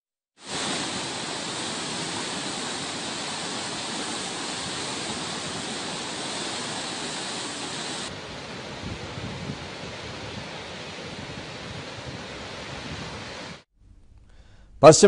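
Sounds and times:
river water rushing: 0.4s - 13.6s.

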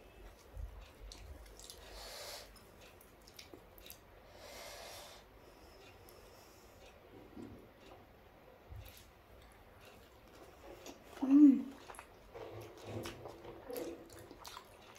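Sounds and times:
soft breaths: 4.2s - 7.9s.

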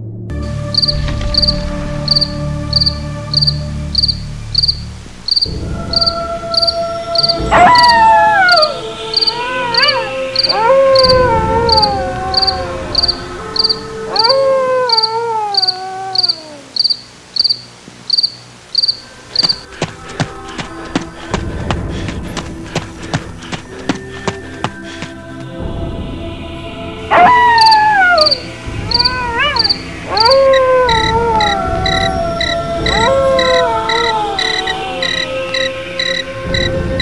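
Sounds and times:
low drone and held tones: 0.0s - 37.0s
crickets chirping: 0.5s - 25.5s, 27.1s - 37.0s
long wailing howls: 5.3s - 16.9s, 27.1s - 37.0s.

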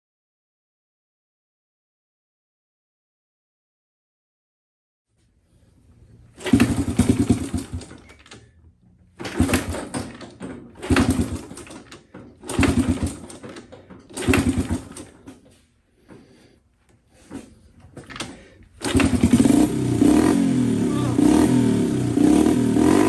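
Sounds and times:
motorcycle engine kick-start sputtering: 6.3s - 15.6s, 17.2s - 23.0s.

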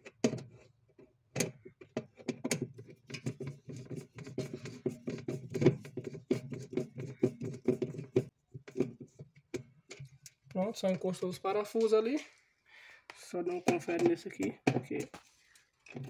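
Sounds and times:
screwdriver clicking and scraping: 1.4s - 11.1s, 13.6s - 16.0s.

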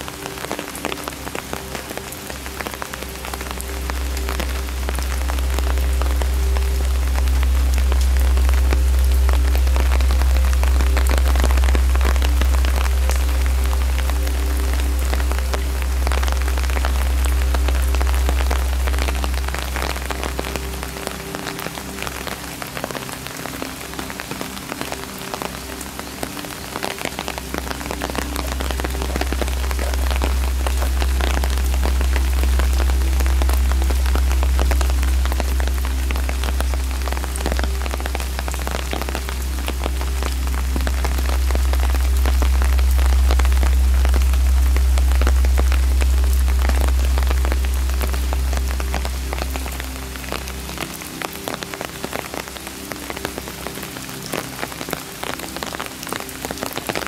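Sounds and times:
rain falling on trees and stone: 0.0s - 57.0s
raindrops ticking: 0.0s - 57.0s
deep low rumble: 3.2s - 21.0s, 27.2s - 51.0s.

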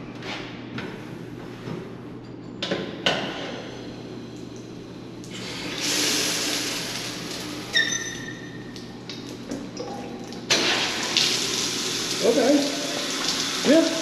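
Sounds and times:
shower water hissing: 5.4s - 7.9s, 10.5s - 14.0s.

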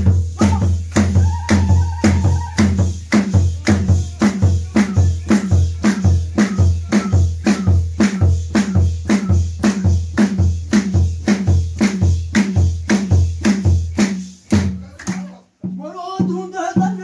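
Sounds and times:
deep drum beats: 0.0s - 17.0s
hand claps: 0.4s - 4.4s, 10.2s - 15.4s.

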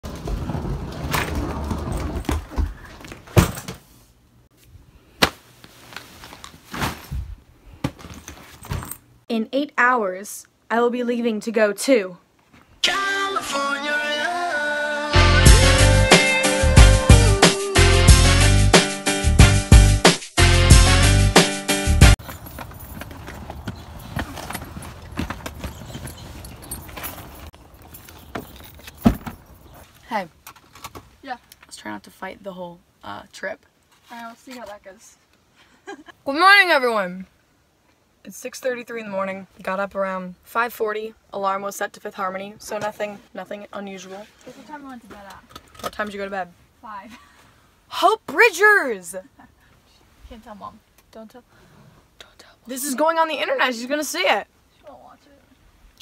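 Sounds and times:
suitcase wheels rolling on concrete: 0.0s - 3.7s, 22.2s - 31.0s
suitcases loaded into car boot: 0.0s - 3.9s, 5.9s - 9.0s, 22.2s - 30.0s
fabric rustling: 5.2s - 9.0s.

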